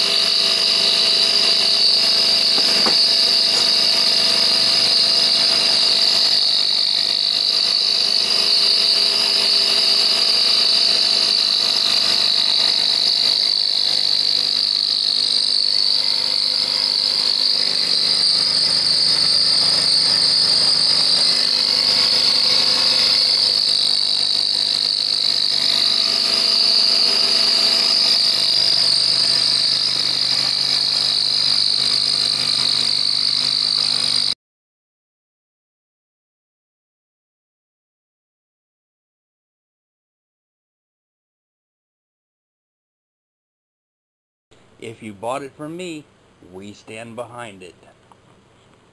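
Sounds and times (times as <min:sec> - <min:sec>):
milling machine whining: 0:00.0 - 0:34.4.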